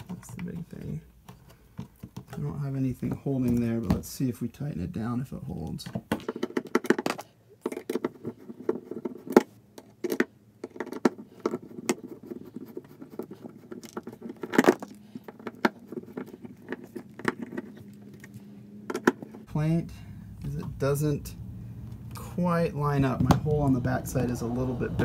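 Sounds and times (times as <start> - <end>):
hands handling plastic device: 0.0 - 4.2, 5.6 - 19.5
steady low hum: 11.8 - 25.0.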